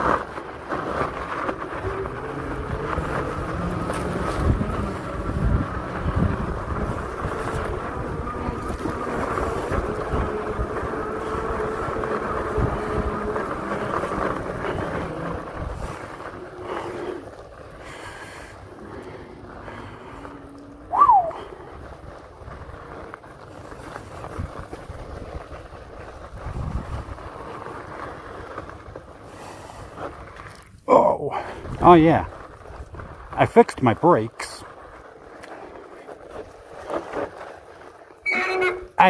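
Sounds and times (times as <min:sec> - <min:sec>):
electric motor whining: 0:00.8 - 0:17.2, 0:18.5 - 0:21.8
wind buffeting microphone: 0:01.1 - 0:17.2, 0:23.8 - 0:27.7.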